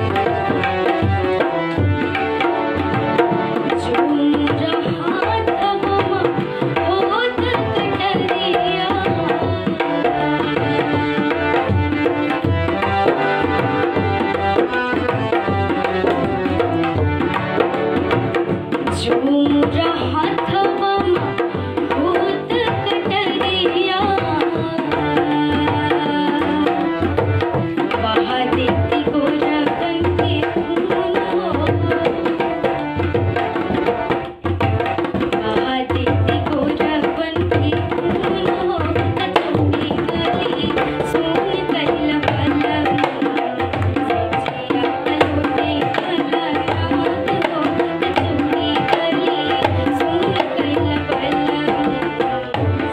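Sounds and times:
tabla playing a rhythm: 0.0s - 52.9s
girl singing a folk song: 3.8s - 11.0s, 19.0s - 27.0s, 28.0s - 32.6s, 35.4s - 52.5s.

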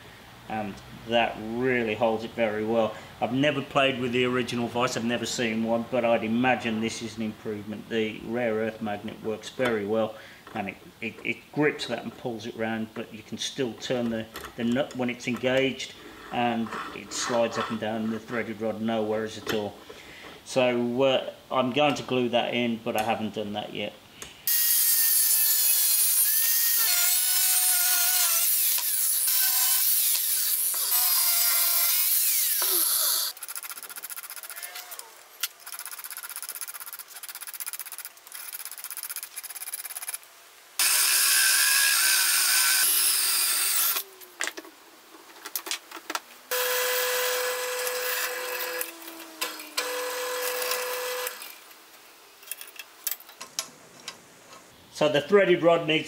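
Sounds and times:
grinding and scraping: 14.0s - 18.8s
angle grinder cutting steel: 24.5s - 33.4s, 40.8s - 44.1s, 46.5s - 51.6s
machine humming: 46.5s - 51.6s.

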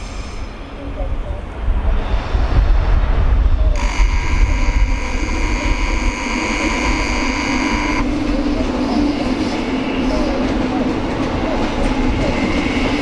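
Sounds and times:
electric train rolling past: 0.0s - 13.0s
electric drive hum: 3.8s - 8.0s
high-pitched metallic squeal: 3.8s - 8.1s.

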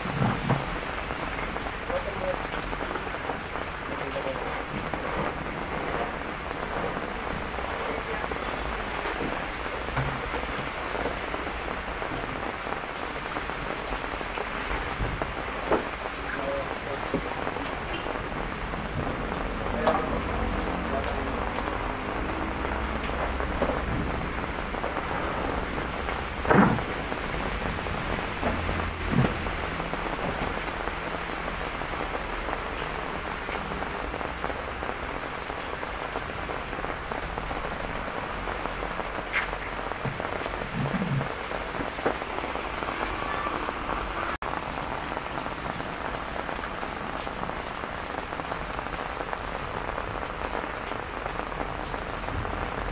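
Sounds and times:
knocks and splashes in plastic basins: 0.0s - 1.9s, 8.3s - 12.4s, 18.9s - 30.6s
heavy rain on concrete: 0.0s - 52.9s.

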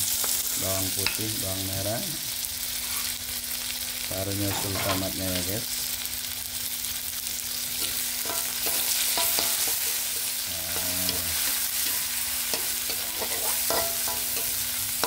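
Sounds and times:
vegetables sizzling in hot oil: 0.0s - 15.0s
spatula clinking against wok: 7.8s - 10.3s, 11.8s - 14.6s.

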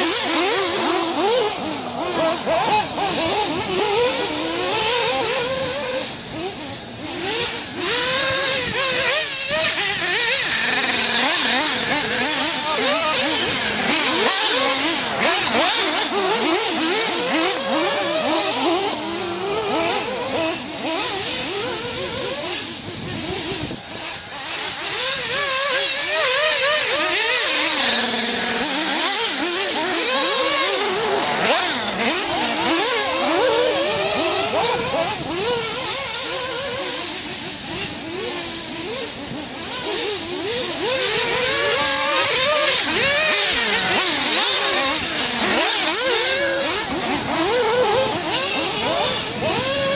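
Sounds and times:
small nitro engines revving: 0.0s - 49.9s.

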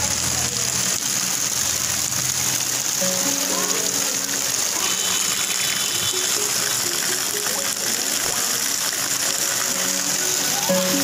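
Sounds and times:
floodwater rushing over stones: 0.0s - 11.0s
faint music with held notes: 2.9s - 11.0s.

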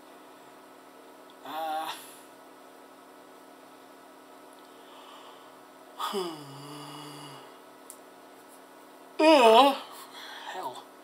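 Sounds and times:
man yawning aloud: 6.0s - 7.4s.

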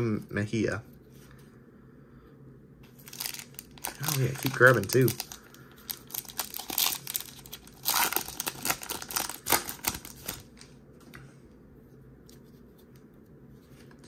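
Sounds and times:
foil wrapper crinkling and tearing: 3.0s - 10.7s.

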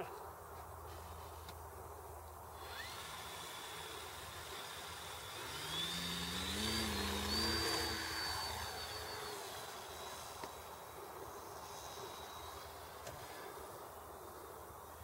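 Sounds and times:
model plane electric motor whine: 2.5s - 13.8s.

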